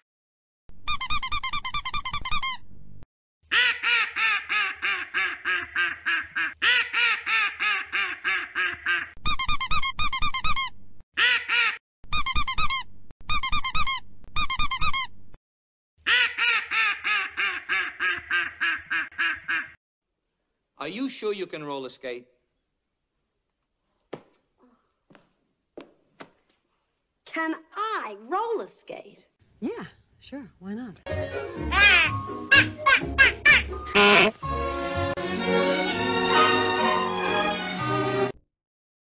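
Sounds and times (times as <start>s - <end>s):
duck quacking: 3.5s - 9.2s, 16.1s - 19.8s, 31.8s - 34.4s.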